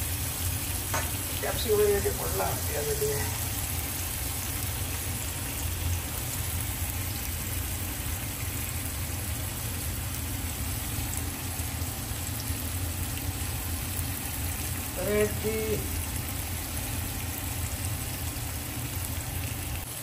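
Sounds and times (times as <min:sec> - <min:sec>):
food sizzling on a grill pan: 0:00.0 - 0:20.0.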